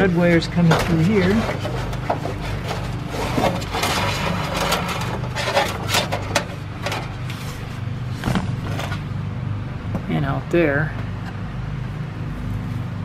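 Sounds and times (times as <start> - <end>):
wire scraping through sheet metal: 0.0 - 7.8
steady low hum: 0.0 - 13.0.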